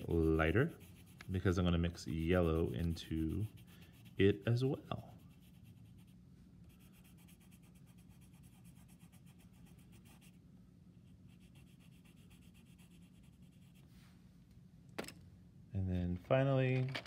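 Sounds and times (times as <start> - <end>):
colored pencil scratching on paper: 0.0 - 10.4, 11.0 - 13.9.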